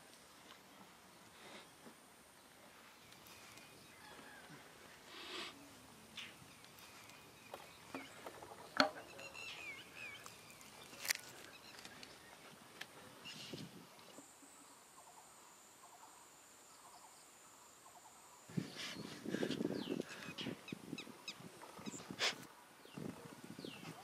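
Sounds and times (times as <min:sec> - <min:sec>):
bird chirps and clicks: 0:06.2 - 0:12.9.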